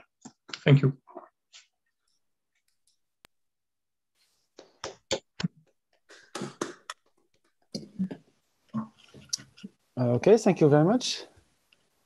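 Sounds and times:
hand claps: 6.1s - 7.0s.

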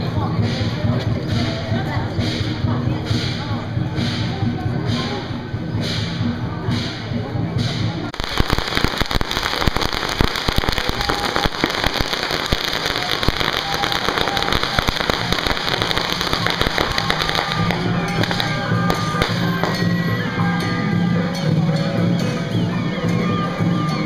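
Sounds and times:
music: 0.0s - 24.0s
firecrackers crackling bangs: 8.1s - 20.2s.

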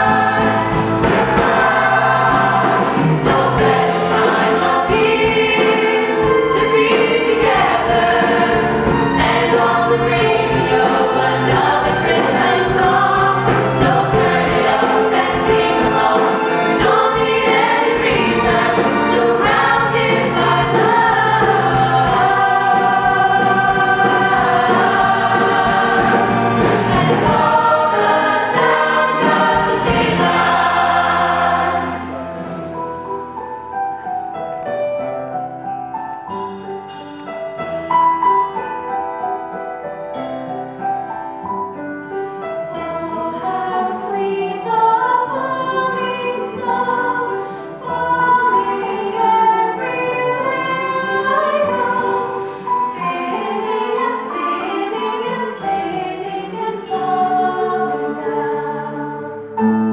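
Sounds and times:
vocal group singing in harmony: 0.0s - 33.0s, 42.6s - 59.9s.

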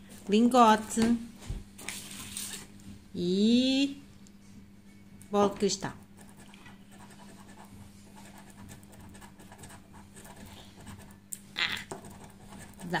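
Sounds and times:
coin scratching a scratch card: 11.9s - 13.0s.

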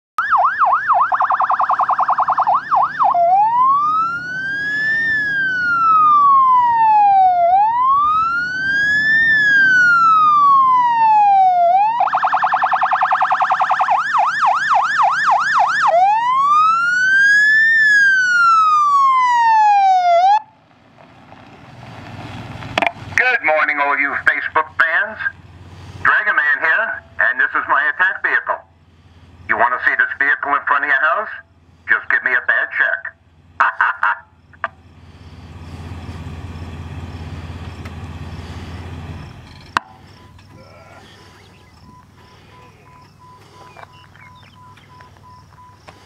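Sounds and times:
electronic siren wailing and yelping: 0.2s - 20.5s, 33.6s - 34.8s.

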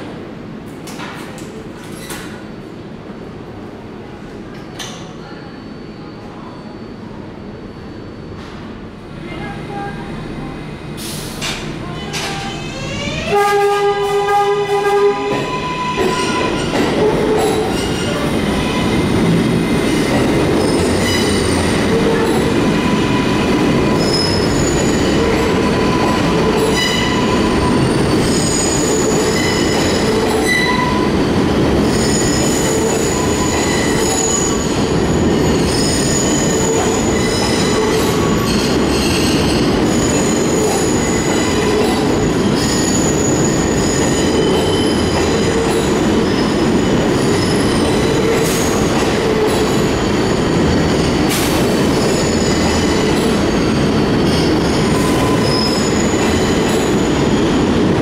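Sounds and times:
train wheels rumbling on rails: 9.4s - 58.0s
train horn blast: 13.2s - 16.4s.

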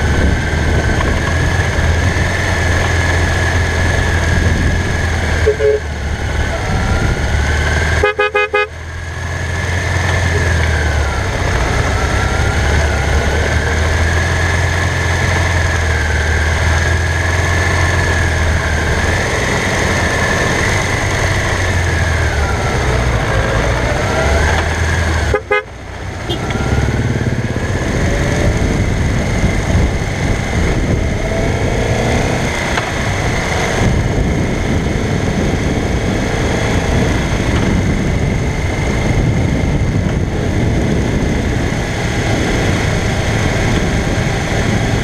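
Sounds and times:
wind noise on microphone: 0.0s - 8.3s, 26.1s - 45.0s
motorcycle engine running: 0.0s - 45.0s
vehicle horn toots: 5.4s - 5.9s, 7.9s - 8.8s, 25.2s - 26.6s.

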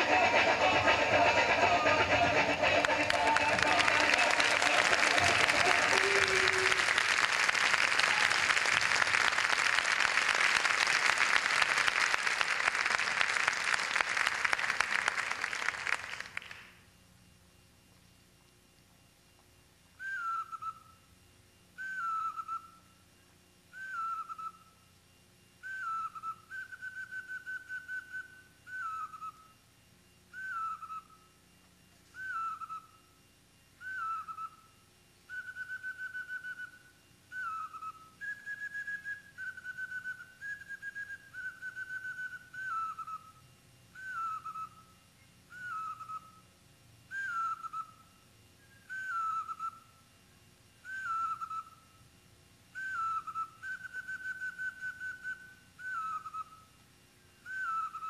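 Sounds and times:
high flute melody: 0.0s - 6.8s.

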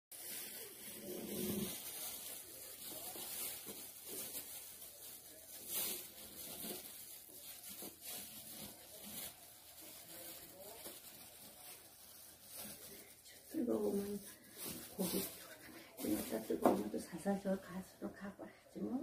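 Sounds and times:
rustling and rubbing: 0.1s - 17.2s.

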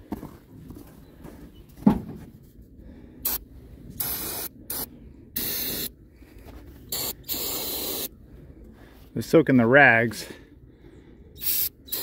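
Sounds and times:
aerosol spray hissing: 4.0s - 5.9s, 6.9s - 8.1s, 11.4s - 12.0s.

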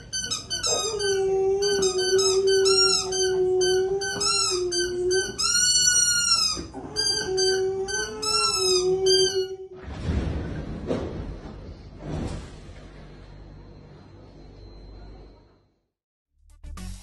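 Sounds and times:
dog long steady howl: 0.7s - 5.4s, 6.8s - 9.8s
higher wavering dog howls: 0.7s - 5.4s, 6.8s - 9.8s.

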